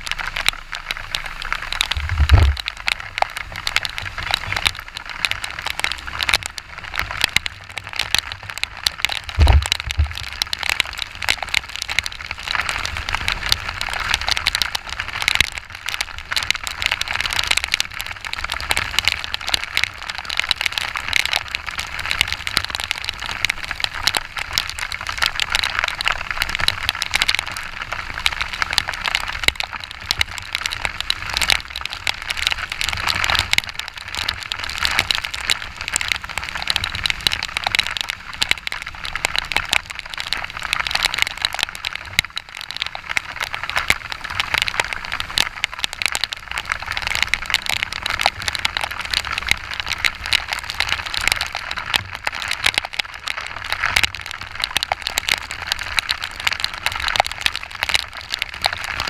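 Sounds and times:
heavy rain hitting camera: 0.0 - 59.0
wind rumble: 0.8 - 51.3.

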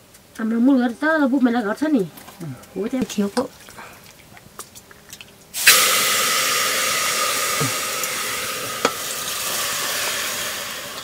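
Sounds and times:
food sizzling in hot oil: 5.5 - 11.0.

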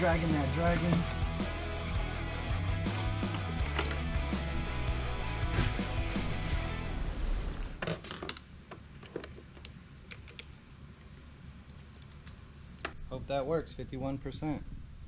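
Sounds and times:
guitar background music: 0.0 - 7.6.

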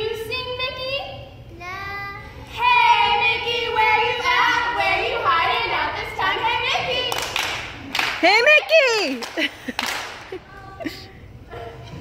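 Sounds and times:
women singing: 2.5 - 7.2.

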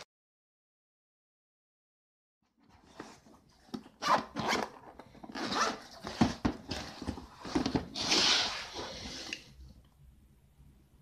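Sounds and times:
zipper pulled open: 4.0 - 6.0.

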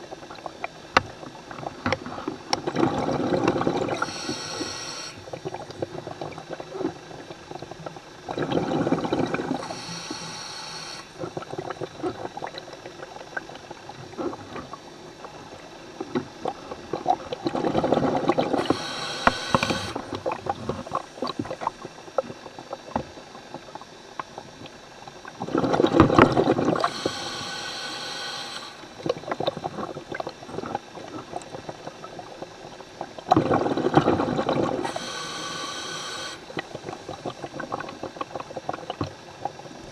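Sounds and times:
exhaled bubbles underwater: 0.0 - 39.9
high-pitched regulator hiss: 3.6 - 5.3, 9.3 - 11.4, 18.4 - 21.4, 26.2 - 29.3, 34.6 - 37.5.

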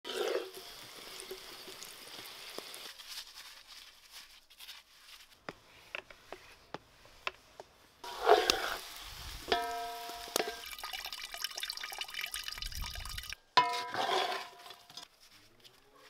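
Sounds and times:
food sizzling in a pan: 0.0 - 3.6, 8.0 - 13.3.

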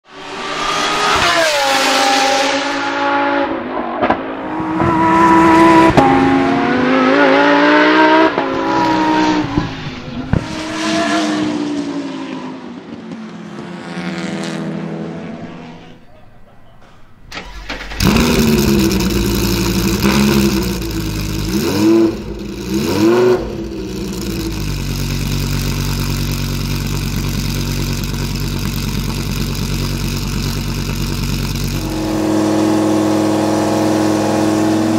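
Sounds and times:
race car engine revving: 0.1 - 16.0, 17.4 - 34.9
race car engine starting: 0.1 - 16.0, 17.2 - 34.9
race car engine idling: 17.4 - 33.6.

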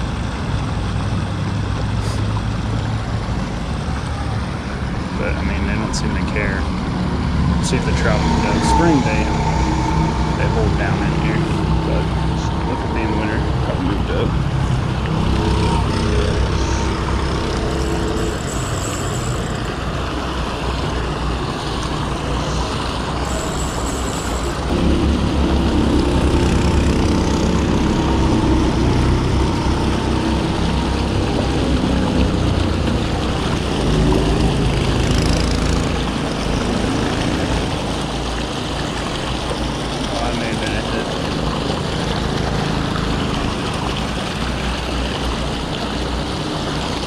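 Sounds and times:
low rumble: 2.6 - 35.2.

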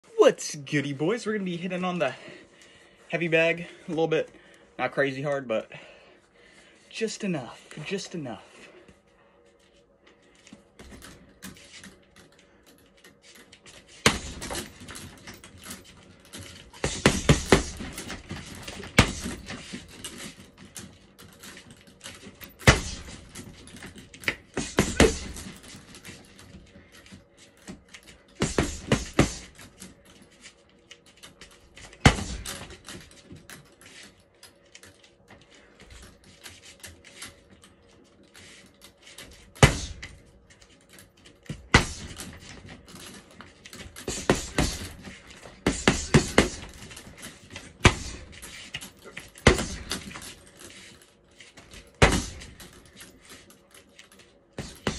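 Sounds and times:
punches thudding on heavy bag: 14.0 - 15.3, 16.7 - 20.0, 22.5 - 26.3, 28.4 - 29.6, 31.9 - 32.9, 39.6 - 40.1, 41.5 - 42.7, 44.0 - 48.5, 49.1 - 50.2, 51.8 - 52.7, 54.6 - 54.9.

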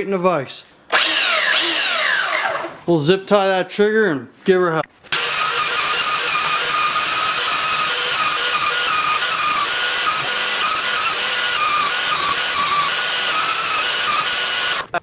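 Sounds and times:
belt sander whining: 0.9 - 2.8, 5.1 - 15.0.

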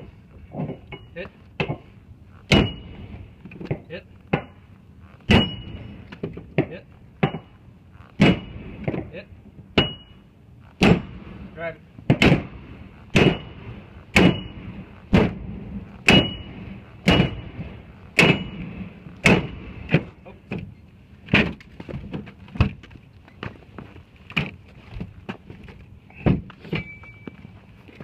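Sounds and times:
axe hammering metal bar: 2.5 - 2.8, 5.3 - 5.8, 9.8 - 10.1, 14.2 - 14.5, 16.1 - 16.5, 17.1 - 17.4, 18.2 - 18.6.

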